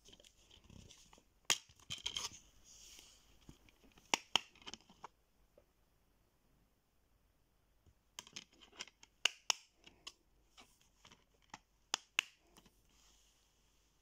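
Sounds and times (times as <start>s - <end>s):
soft rub: 2.4s - 3.4s, 12.8s - 14.0s.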